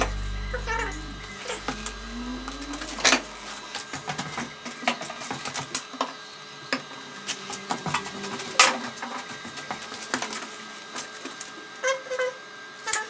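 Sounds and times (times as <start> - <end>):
low steady hum: 0.0 - 4.0.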